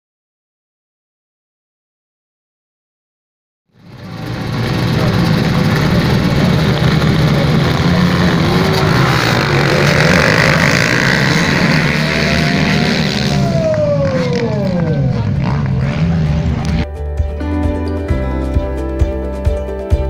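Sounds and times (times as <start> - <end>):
motocross bikes racing: 3.8 - 16.9
motorbikes passing close by: 3.8 - 16.9.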